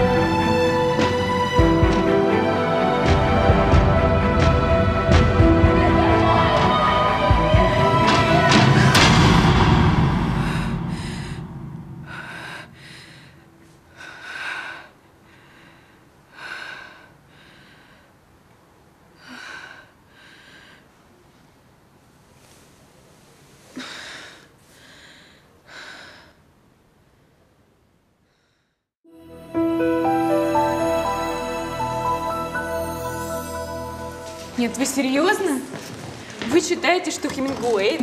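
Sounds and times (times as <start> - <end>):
music: 0.0 - 12.5, 29.1 - 35.8
woman gasping breaths: 10.2 - 18.2, 23.7 - 26.5.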